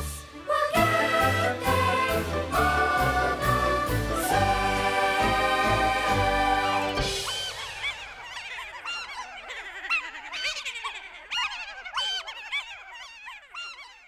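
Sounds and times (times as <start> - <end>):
cartoon voices laughing: 7.2 - 13.6.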